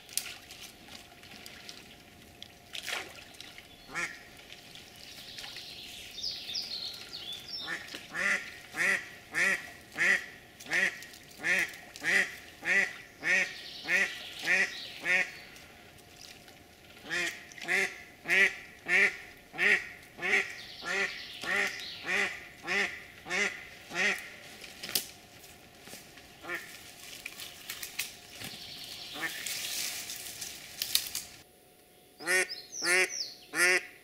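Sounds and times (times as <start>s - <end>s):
duck quacking: 3.9s - 4.2s, 7.6s - 15.4s, 17.0s - 24.4s, 26.4s - 26.7s, 32.2s - 34.0s.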